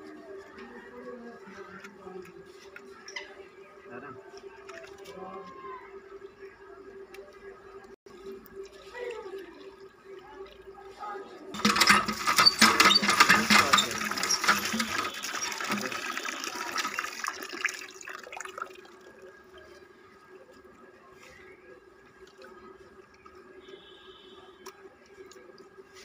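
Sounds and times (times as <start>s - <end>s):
tap water splashing into tub: 13.7s - 18.9s.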